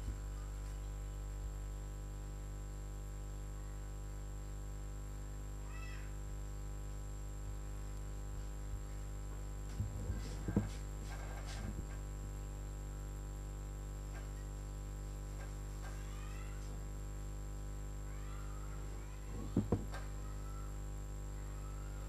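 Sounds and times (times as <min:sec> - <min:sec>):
electrical mains hum: 0:00.0 - 0:22.0
soft knocks: 0:19.4 - 0:20.0.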